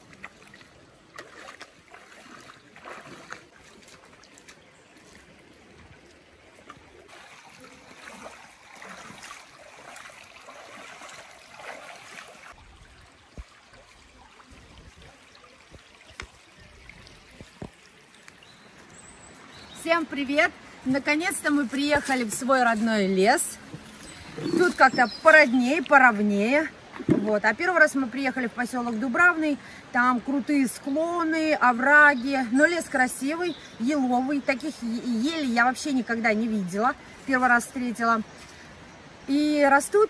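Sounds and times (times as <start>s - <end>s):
footsteps splashing through water: 0.0s - 12.6s
running water: 0.0s - 40.0s.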